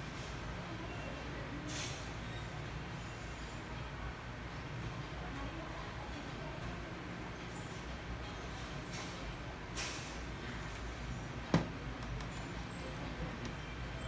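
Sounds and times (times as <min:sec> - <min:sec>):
sharp knock on wooden desk: 0:11.5 - 0:11.8.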